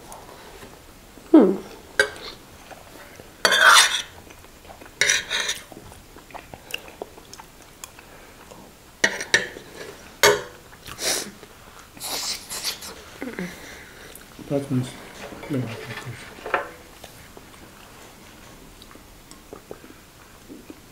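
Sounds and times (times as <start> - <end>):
spoons scraping ceramic plates: 3.4 - 4.2, 5.0 - 5.7, 9.0 - 10.5, 12.3 - 17.6.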